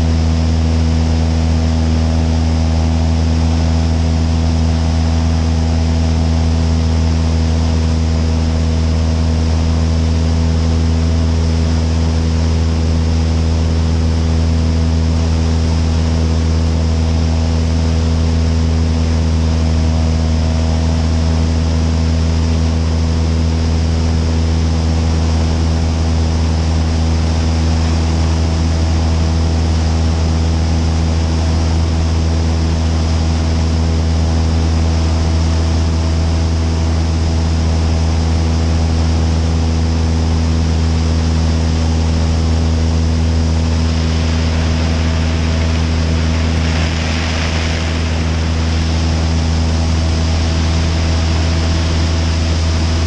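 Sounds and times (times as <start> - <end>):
propeller plane engine running: 0.0 - 53.0
wind rushing over microphone: 42.5 - 53.0.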